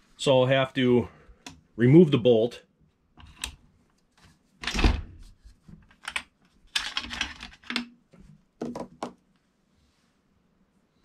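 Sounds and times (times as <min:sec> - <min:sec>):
metal bolt clicking and knocking: 0:05.9 - 0:07.9.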